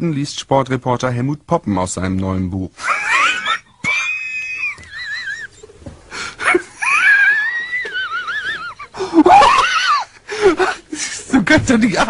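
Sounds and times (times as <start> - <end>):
man laughing hysterically: 2.8 - 5.7, 6.4 - 11.2.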